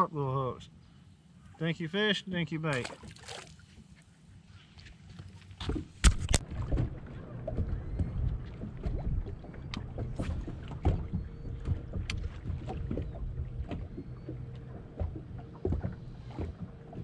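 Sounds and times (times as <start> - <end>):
waves slapping hull: 2.6 - 3.9, 4.8 - 17.0.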